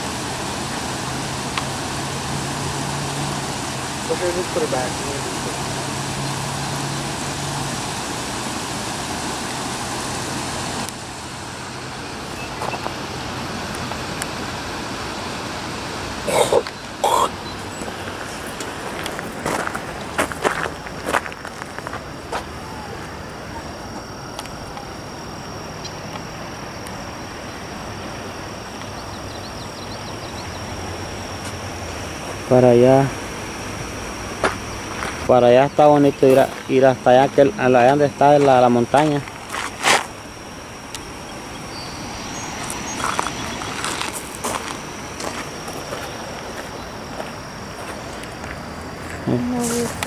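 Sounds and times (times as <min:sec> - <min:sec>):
even hiss: 0:00.0 - 0:50.0
thin high whine: 0:00.0 - 0:50.0
faint high chirps: 0:12.0 - 0:12.9.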